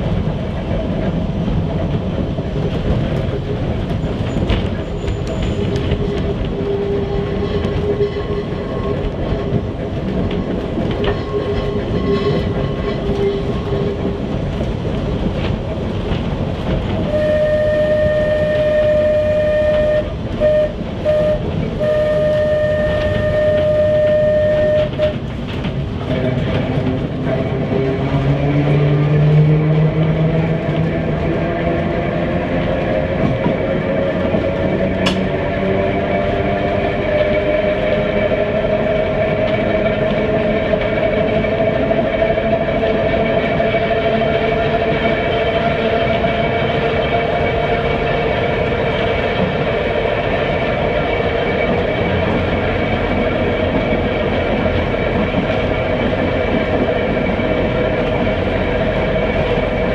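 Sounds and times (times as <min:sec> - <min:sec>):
tram wheels rumbling on rail: 0:00.0 - 0:59.9
steady high tone: 0:17.1 - 0:25.1.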